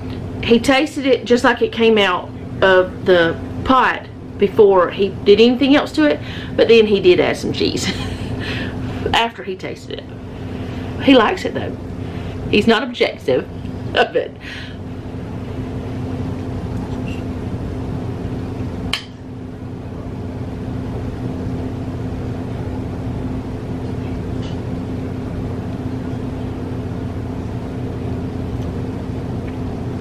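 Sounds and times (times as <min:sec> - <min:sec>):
mechanical humming: 0:00.0 - 0:30.0
sharp click: 0:18.9 - 0:19.2.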